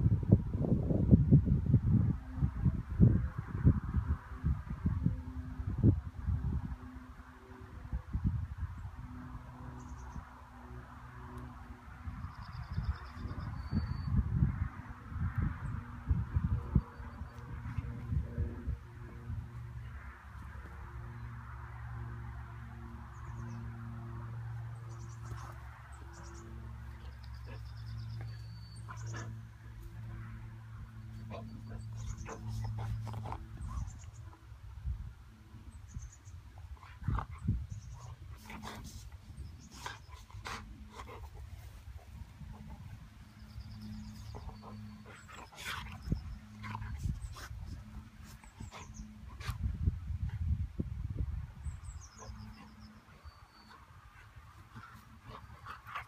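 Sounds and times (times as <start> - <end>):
dog breathing and snuffling: 31.1 - 34.4, 36.8 - 50.4.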